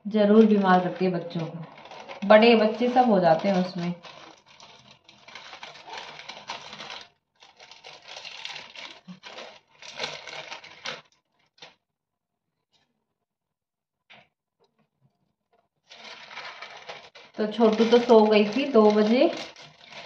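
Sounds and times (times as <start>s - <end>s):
plastic wrapper crinkling: 0.0s - 11.8s, 15.8s - 20.0s.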